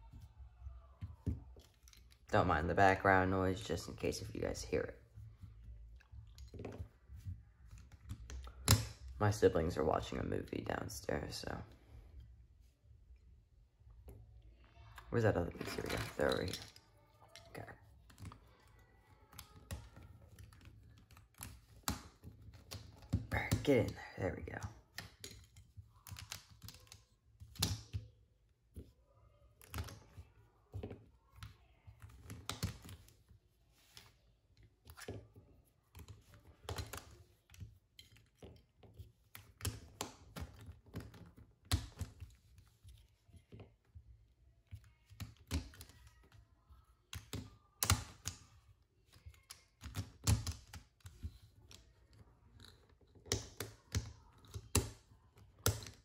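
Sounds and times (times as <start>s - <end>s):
plastic puzzle cube pieces clicking: 24.9s - 28.0s.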